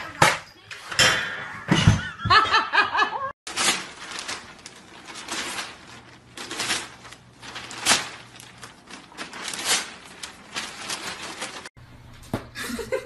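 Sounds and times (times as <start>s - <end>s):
person laughing: 1.8s - 3.3s, 12.6s - 13.0s
newspaper pages rustling: 3.5s - 11.7s.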